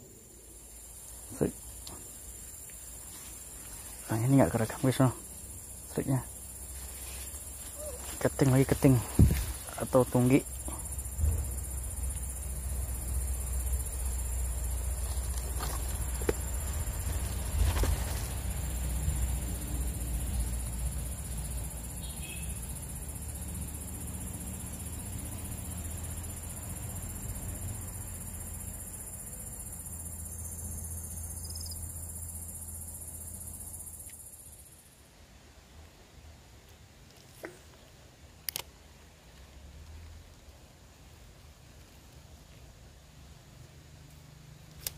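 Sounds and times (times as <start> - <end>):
high-pitched insect drone: 0.0 - 34.9.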